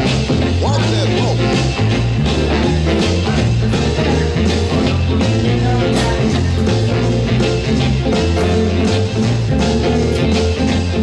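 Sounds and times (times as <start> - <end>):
rock music: 0.0 - 11.0.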